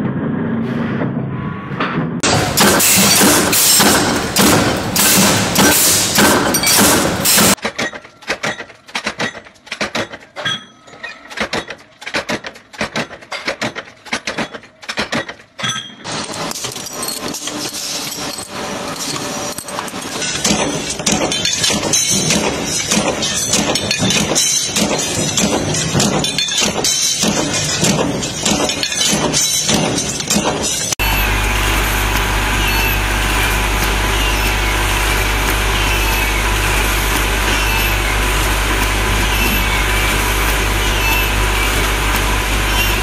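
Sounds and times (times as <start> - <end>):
sharp metal clanks: 2.2 - 31.2
metalworking machine noise: 2.2 - 43.0.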